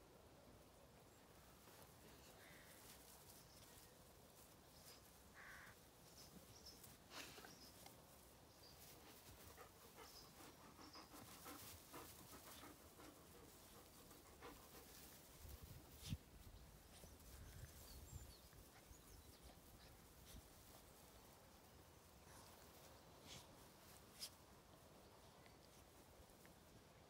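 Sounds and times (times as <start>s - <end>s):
faint rustling in grass: 0.5s - 27.0s.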